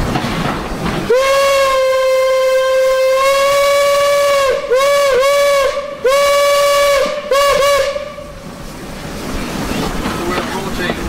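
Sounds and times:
steam whistle blasts: 1.1s - 8.4s.

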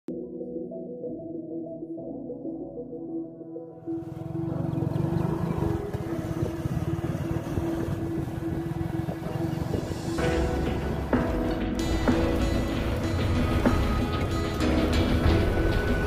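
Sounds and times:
held music tone: 3.9s - 16.0s
truck engine running: 4.0s - 16.0s.

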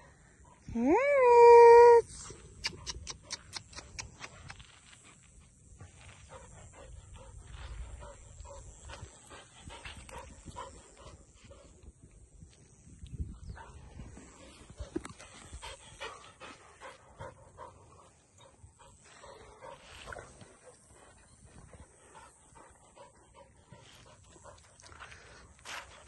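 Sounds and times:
dog panting: 2.7s - 11.8s, 13.6s - 26.0s
footsteps on dirt: 23.6s - 26.0s.

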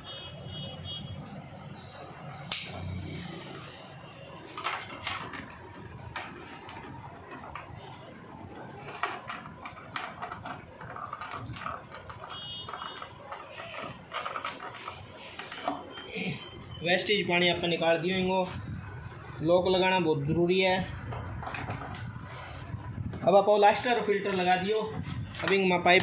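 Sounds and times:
plastic tubing clicks and knocks: 8.7s - 15.9s, 20.9s - 22.2s.

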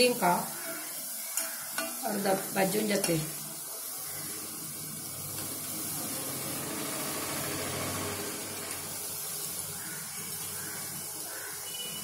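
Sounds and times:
food sizzling in hot oil: 0.0s - 12.0s.

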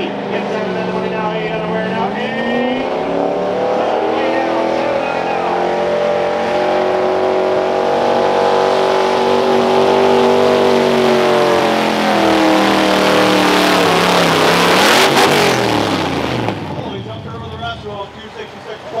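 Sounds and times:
truck engine running flat out: 6.2s - 19.0s.

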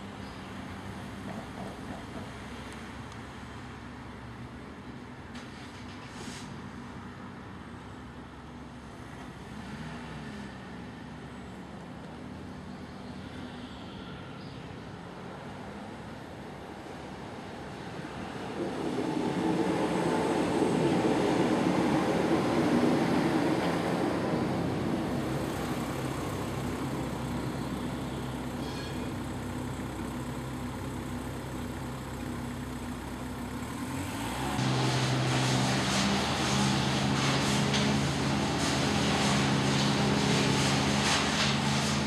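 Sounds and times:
vehicle passing: 33.6s - 42.0s.

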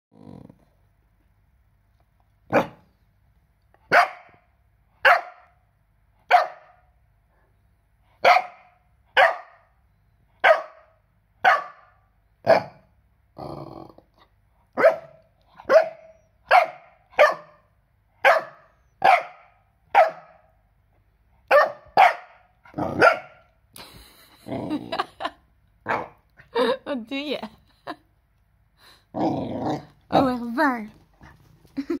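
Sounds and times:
puppy barking: 2.5s - 2.9s, 3.9s - 5.6s, 6.3s - 6.9s, 8.2s - 9.7s, 10.4s - 12.9s, 14.8s - 20.5s, 21.5s - 23.5s, 25.8s - 26.2s.

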